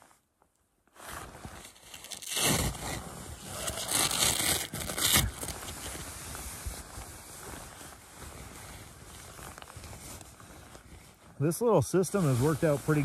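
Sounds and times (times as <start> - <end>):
fabric rustling: 0.0 - 11.4
packed snow scraping: 1.0 - 13.0.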